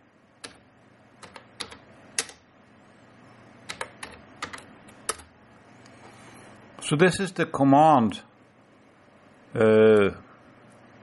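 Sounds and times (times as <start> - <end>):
computer keyboard typing: 0.4 - 0.6, 1.2 - 2.4, 3.6 - 5.3.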